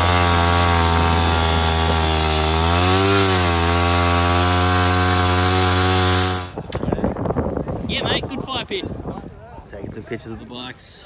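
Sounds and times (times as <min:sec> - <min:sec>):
motorcycle engine revving: 0:00.0 - 0:06.7.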